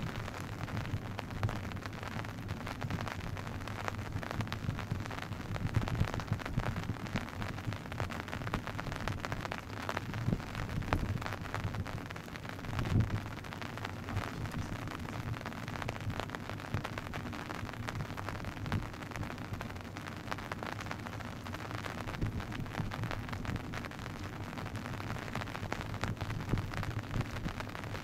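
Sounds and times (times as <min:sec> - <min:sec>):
wind buffeting the microphone: 0:12.7 - 0:13.3, 0:26.0 - 0:27.6.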